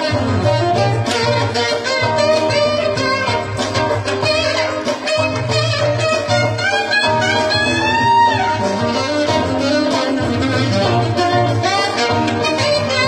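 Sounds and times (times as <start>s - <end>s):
bass line: 0.0s - 13.0s
live band music: 0.0s - 13.0s
saxophone solo: 0.0s - 13.0s.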